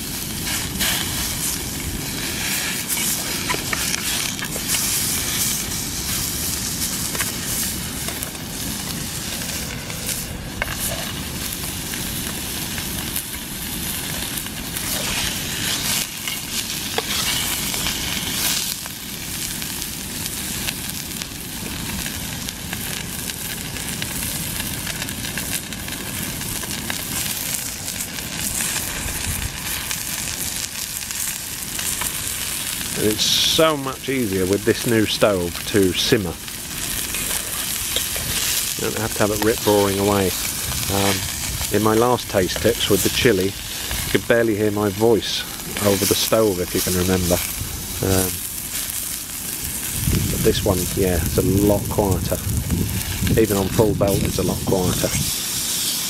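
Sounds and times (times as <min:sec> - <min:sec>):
steak sizzling in a frying pan: 0:00.0 - 0:56.0
fork scraping a pan: 0:14.8 - 0:17.6, 0:36.9 - 0:38.7.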